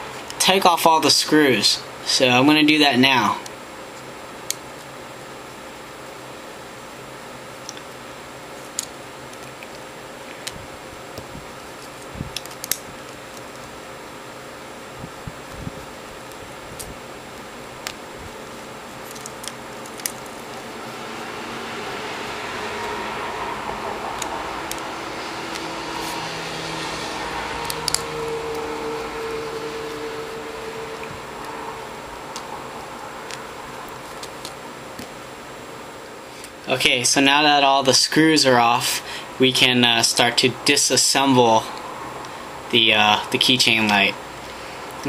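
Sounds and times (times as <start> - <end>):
steady background hiss: 0.0 - 45.0
steady background hum: 0.0 - 45.0.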